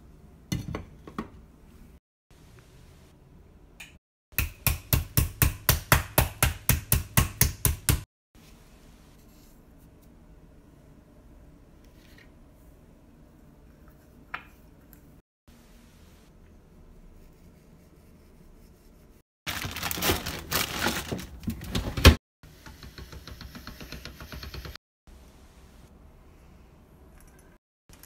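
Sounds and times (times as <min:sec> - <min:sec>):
fast knocking in food preparation: 0:22.6 - 0:24.8.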